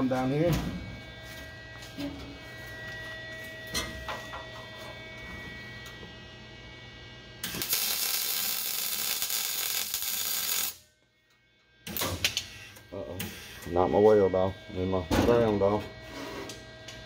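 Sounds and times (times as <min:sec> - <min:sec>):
electrical hum: 0:00.0 - 0:17.0
welder arc crackling hiss: 0:07.4 - 0:10.8.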